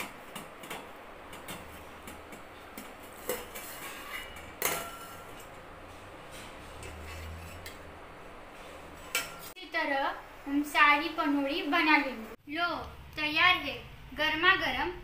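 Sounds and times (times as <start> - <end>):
metal plate scraping a pot: 2.6 - 7.9.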